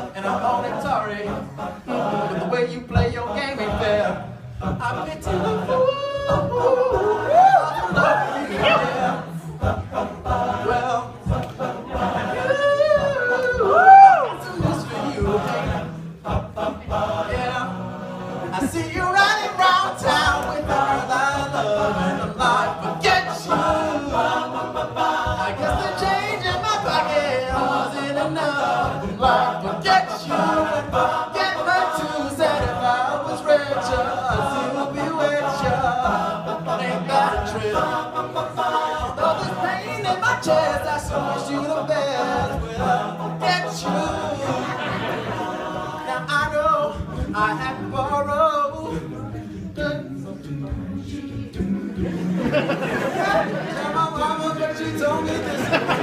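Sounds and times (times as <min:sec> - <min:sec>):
male a cappella group singing: 0:00.0 - 0:56.0
vocal percussion beat: 0:00.0 - 0:56.0.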